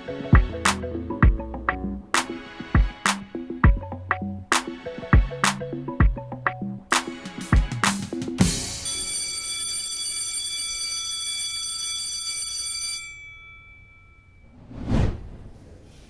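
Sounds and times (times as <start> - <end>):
short rush of noise: 14.5 - 16.0.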